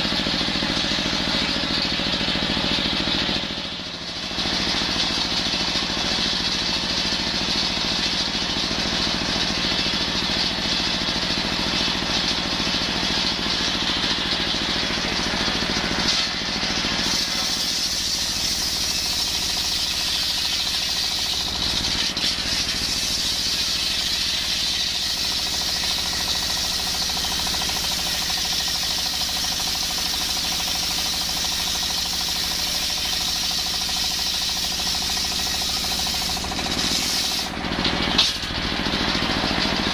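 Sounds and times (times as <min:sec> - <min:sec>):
diesel engine running: 0:00.0 - 0:39.9
circular saw cutting wood: 0:15.4 - 0:38.5.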